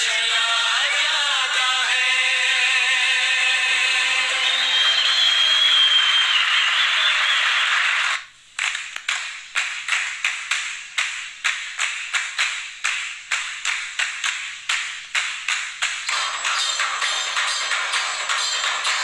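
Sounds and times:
percussive music taps: 0:08.6 - 0:19.0.

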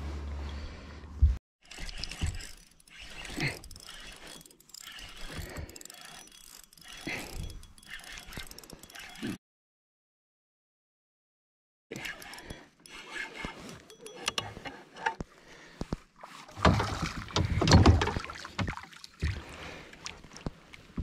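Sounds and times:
fishing reel clicking and whirring: 0:01.6 - 0:09.4, 0:11.9 - 0:14.8.

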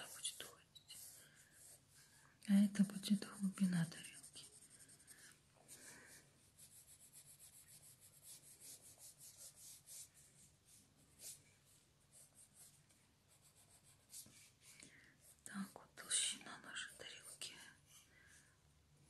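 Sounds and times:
drawing tool strokes on paper: 0:00.0 - 0:02.1, 0:02.7 - 0:15.4.

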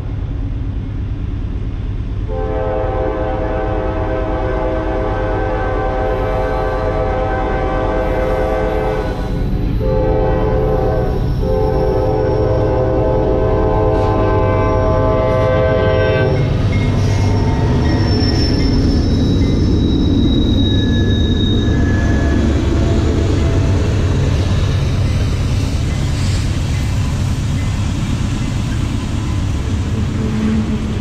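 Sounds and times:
train wheels rumbling on rail: 0:00.0 - 0:31.0
locomotive air horn chord: 0:02.3 - 0:16.5
high wheel squeals: 0:16.3 - 0:31.0.

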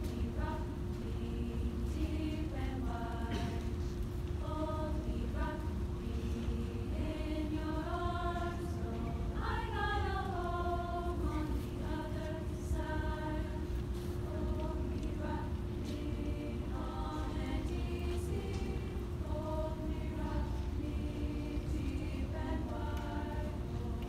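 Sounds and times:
women's choir singing: 0:00.0 - 0:24.0.

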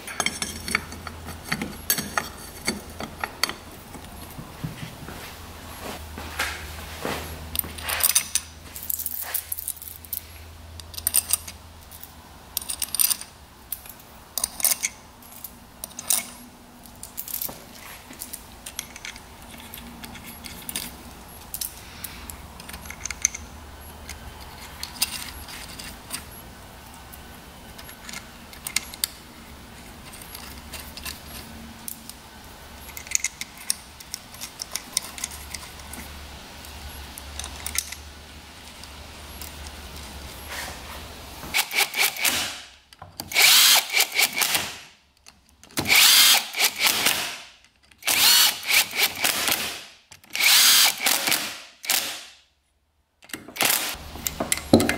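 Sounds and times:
metal springs and bolts clinking: 0:00.0 - 0:04.1, 0:07.5 - 0:27.0, 0:27.7 - 0:32.2, 0:32.8 - 0:36.1.

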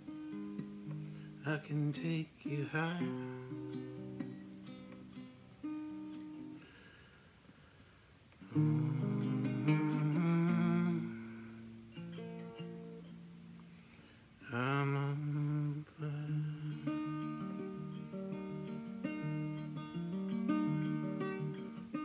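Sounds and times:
acoustic guitar chords: 0:00.0 - 0:07.0, 0:08.4 - 0:22.0
person humming: 0:08.4 - 0:11.7, 0:14.4 - 0:17.2.

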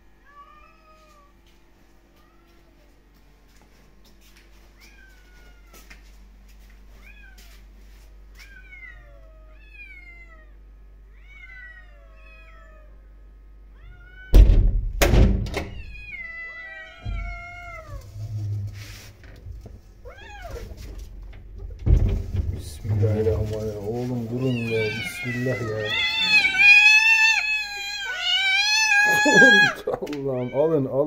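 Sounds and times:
kittens meowing: 0:08.4 - 0:13.0, 0:15.7 - 0:18.7, 0:19.8 - 0:21.0, 0:22.9 - 0:31.0
door latch thunks: 0:14.3 - 0:15.8.

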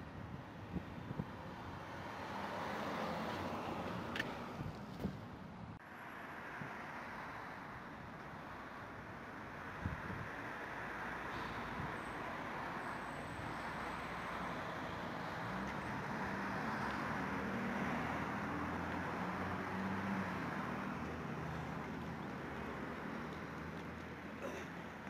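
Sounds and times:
road traffic hiss: 0:00.2 - 0:25.0
passing vehicle engine hum: 0:09.4 - 0:25.0.

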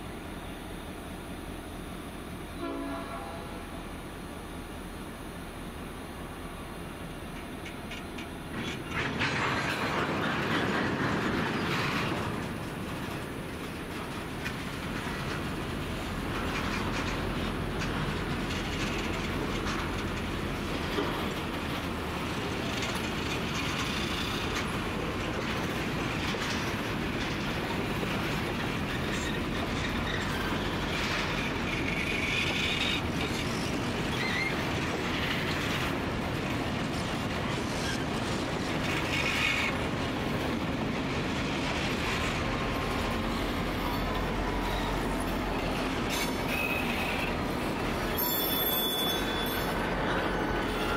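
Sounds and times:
train wheels and engines rumbling: 0:00.0 - 0:50.9
high wheel squeals: 0:28.9 - 0:34.6, 0:43.2 - 0:50.9.

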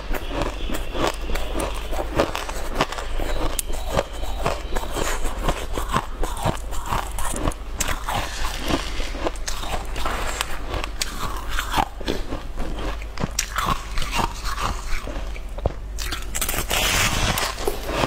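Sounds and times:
ice crunching while chewing: 0:00.1 - 0:18.0.

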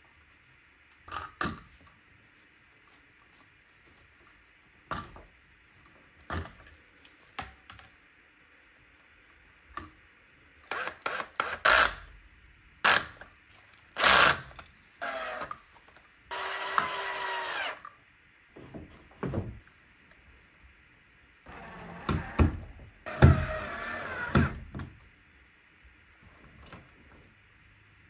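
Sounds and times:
cordless drill driving screws: 0:10.7 - 0:12.0, 0:14.0 - 0:15.5, 0:16.3 - 0:17.8, 0:21.5 - 0:22.5, 0:23.1 - 0:24.6.

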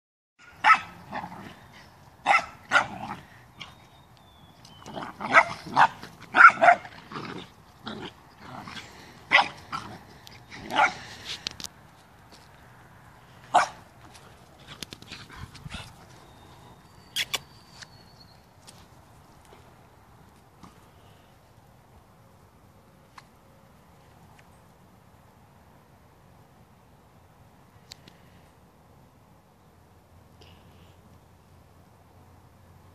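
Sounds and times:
dogs barking: 0:00.4 - 0:01.6, 0:02.2 - 0:03.7, 0:04.9 - 0:10.0, 0:10.6 - 0:11.1, 0:13.5 - 0:13.8.

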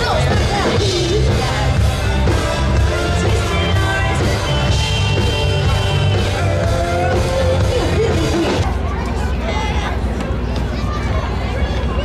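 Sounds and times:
music with bass and melody: 0:00.0 - 0:08.7.

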